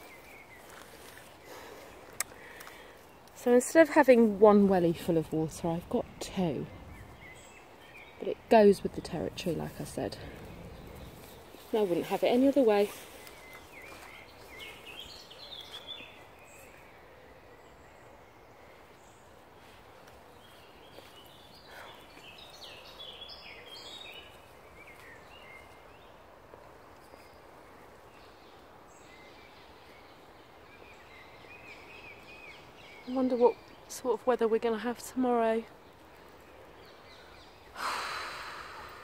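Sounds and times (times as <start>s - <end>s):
faint outdoor background hiss: 0.0s - 39.0s
birds chirping and singing: 4.2s - 18.2s, 20.4s - 26.1s.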